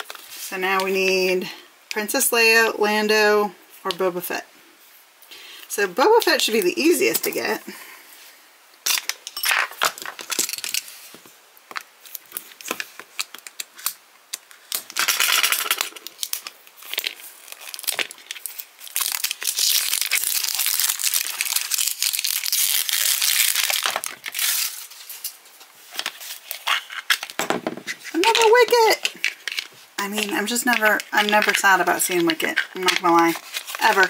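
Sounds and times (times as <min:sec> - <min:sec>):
cardboard tearing and rustling: 0:16.0 - 0:25.1, 0:32.9 - 0:34.0.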